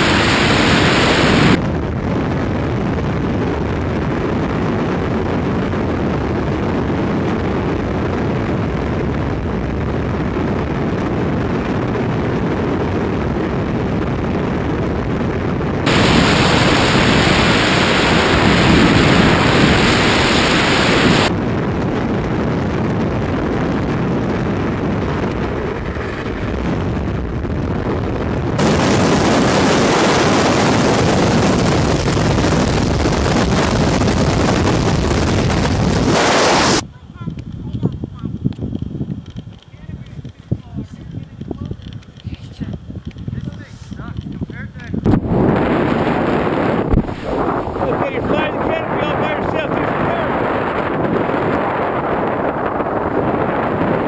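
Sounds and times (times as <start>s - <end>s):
freefall wind rushing over microphone: 0.0s - 54.0s.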